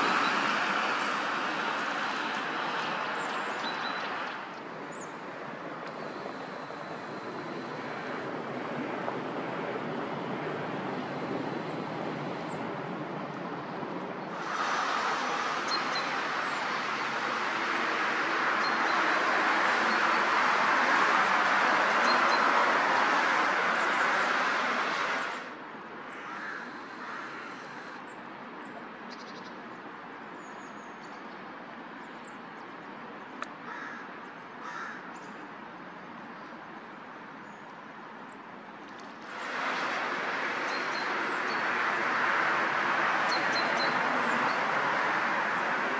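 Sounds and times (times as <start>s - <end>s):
rushing outdoor background noise: 0.0s - 45.9s
crows cawing: 26.2s - 28.0s, 33.7s - 35.1s.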